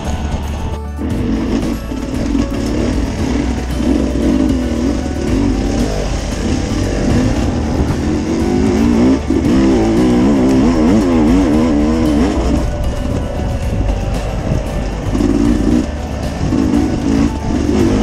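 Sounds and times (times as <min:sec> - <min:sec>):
motorcycle engine revving: 0:00.0 - 0:18.0.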